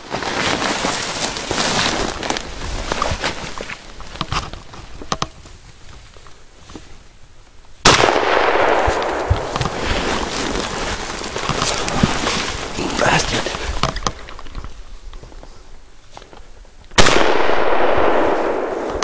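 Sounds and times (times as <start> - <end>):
grass and brush rustling: 0.0 - 19.0
gunshot: 7.8 - 9.6, 17.0 - 19.0.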